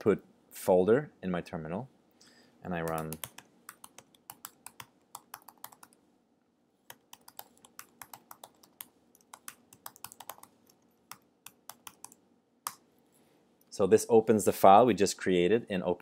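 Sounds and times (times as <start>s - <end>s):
typing on computer keyboard: 2.8s - 6.0s, 6.9s - 12.2s.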